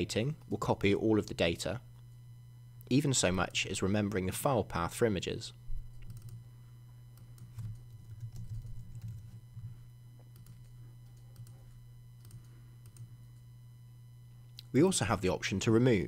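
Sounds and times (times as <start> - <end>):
steady low hum: 0.0 - 16.0
typing on computer keyboard: 5.9 - 6.4, 7.2 - 9.4, 10.3 - 11.6.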